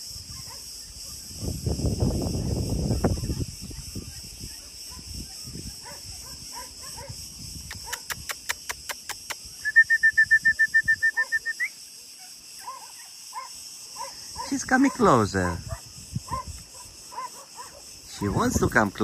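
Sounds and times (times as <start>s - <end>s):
high insect buzzing: 0.0s - 19.0s
sharp clicks: 7.7s - 9.5s.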